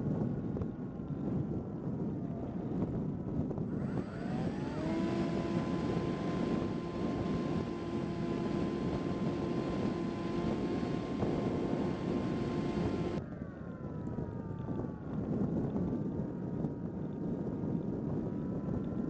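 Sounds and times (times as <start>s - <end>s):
electric motor and propeller whine: 2.1s - 13.2s.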